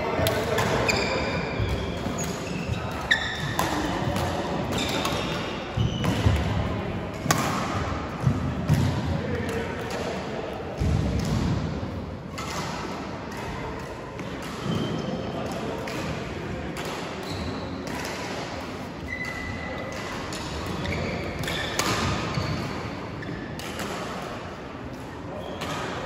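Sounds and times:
shoe squeaks: 0:00.8 - 0:03.6, 0:19.1 - 0:19.7, 0:20.7 - 0:23.5, 0:25.3 - 0:25.7
badminton racket hits: 0:01.7 - 0:06.4, 0:17.8 - 0:22.9.

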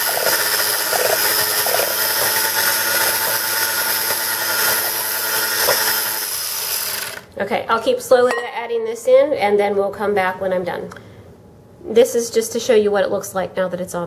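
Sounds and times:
electric hand mixer whirring: 0:00.0 - 0:07.3.

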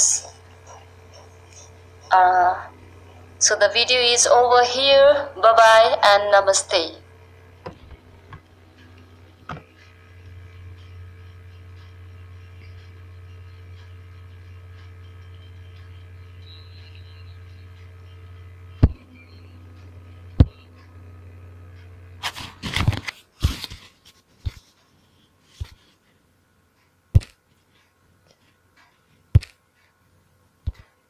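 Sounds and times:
low steady hum: 0:00.0 - 0:31.0
rubbing on microphone: 0:22.2 - 0:26.0.

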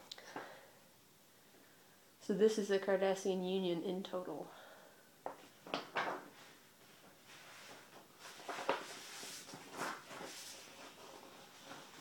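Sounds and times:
paper map rustling: 0:06.4 - 0:12.0.

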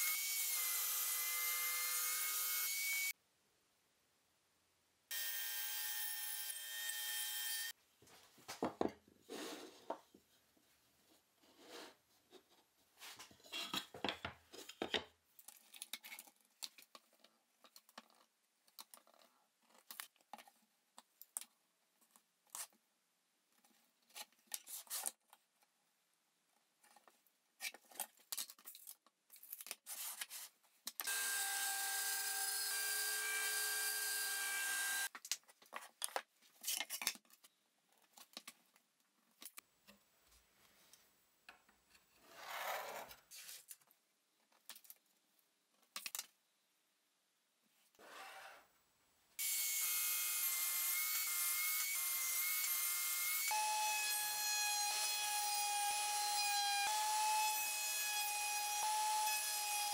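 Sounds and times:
small power tool running: 0:31.1 - 0:35.1.

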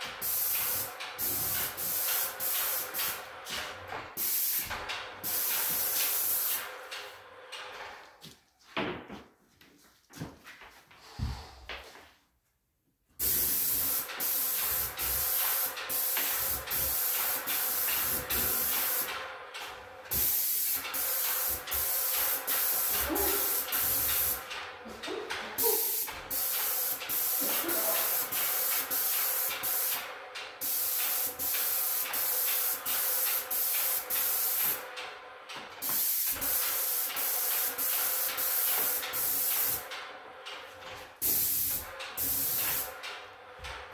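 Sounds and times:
paint spray gun hissing: 0:00.2 - 0:03.3, 0:04.2 - 0:06.7, 0:13.2 - 0:19.1, 0:20.1 - 0:24.4, 0:25.6 - 0:34.8, 0:35.8 - 0:39.9, 0:41.2 - 0:42.9.

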